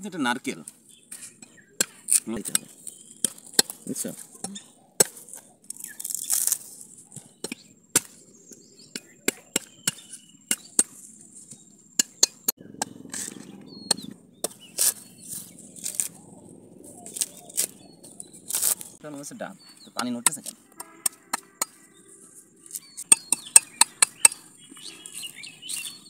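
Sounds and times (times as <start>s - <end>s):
husk fibres tearing: 5.2s - 7.1s, 14.7s - 16.2s, 16.9s - 19.0s
knife chopping coconut husk: 7.4s - 12.5s.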